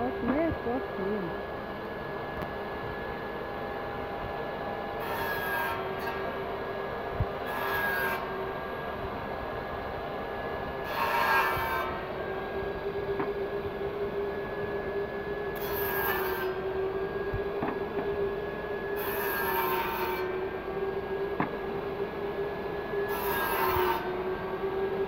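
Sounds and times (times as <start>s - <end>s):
table saw and dust extractor whine: 0.0s - 25.0s
saw cutting wood: 4.9s - 6.4s, 7.4s - 8.6s, 10.8s - 12.4s, 15.5s - 16.9s, 19.0s - 20.9s, 23.0s - 25.0s.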